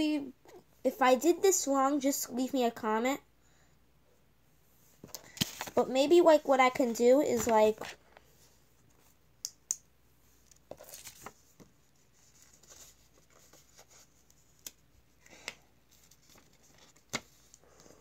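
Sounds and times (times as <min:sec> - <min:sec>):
paper rustling: 0:05.2 - 0:05.9, 0:10.7 - 0:14.8.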